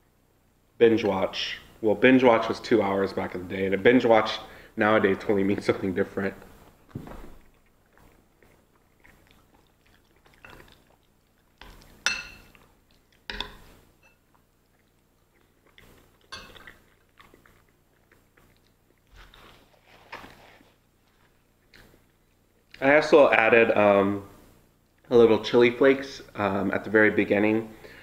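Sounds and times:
close-up chewing: 0:05.6 - 0:22.9
metal spoon clinking bowl: 0:11.6 - 0:12.6, 0:13.3 - 0:14.2, 0:16.3 - 0:16.7.

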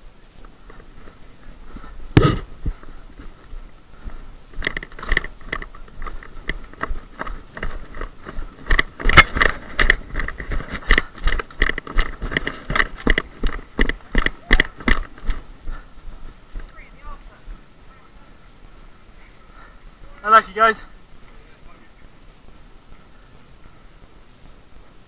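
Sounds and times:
footsteps running on dry leaves: 0:00.8 - 0:17.7.

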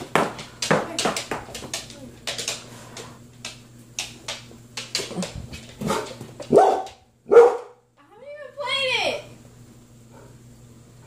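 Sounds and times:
dog barking: 0:05.8 - 0:07.8.

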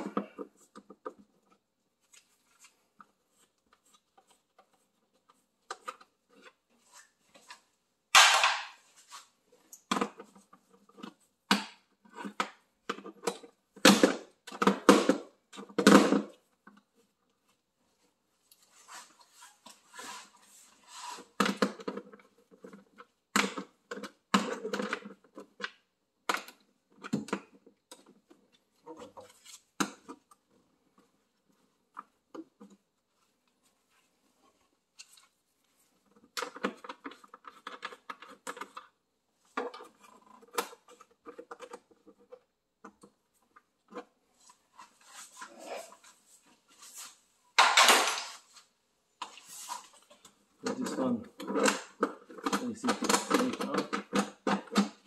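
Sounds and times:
tools and parts clicking and rattling: 0:36.0 - 0:45.4, 0:47.6 - 0:48.5, 0:49.3 - 0:55.0.

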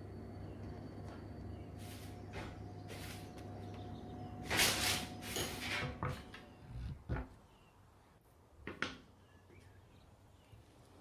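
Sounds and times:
low steady hum: 0:00.0 - 0:08.0.

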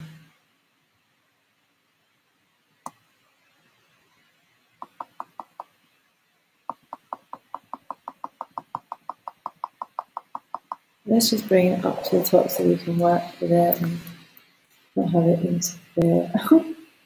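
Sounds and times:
computer mouse clicking: 0:06.7 - 0:10.8.

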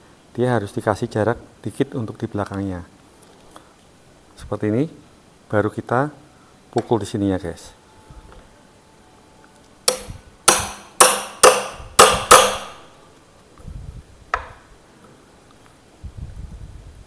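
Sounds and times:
hammer striking metal bar: 0:09.9 - 0:12.9.

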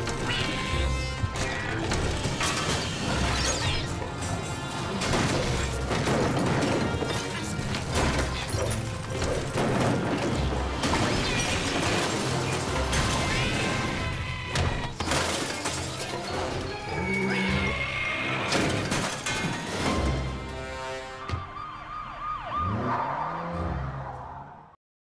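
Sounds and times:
shelves crashing: 0:00.0 - 0:16.9, 0:18.5 - 0:20.6
cartoon background music: 0:00.0 - 0:23.8
rattling and clattering: 0:04.0 - 0:16.9, 0:18.5 - 0:20.5.

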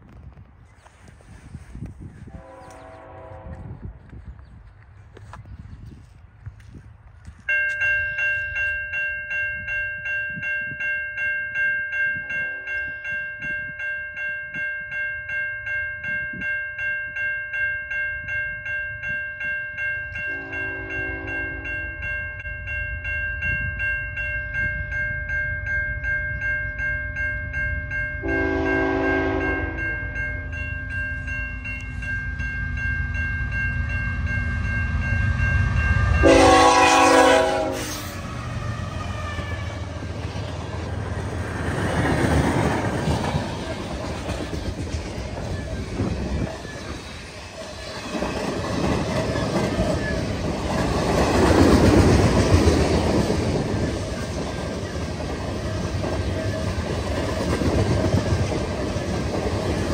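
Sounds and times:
freight train rumble: 0:00.0 - 0:59.9
train horn blasts: 0:02.2 - 0:04.0, 0:20.3 - 0:22.0, 0:28.2 - 0:29.9, 0:36.0 - 0:40.0
level crossing bell ringing: 0:07.5 - 0:37.8.

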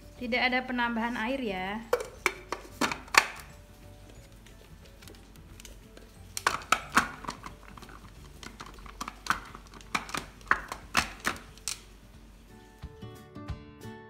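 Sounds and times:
plastic and metal clicks and knocks: 0:01.9 - 0:03.5, 0:05.0 - 0:11.8.

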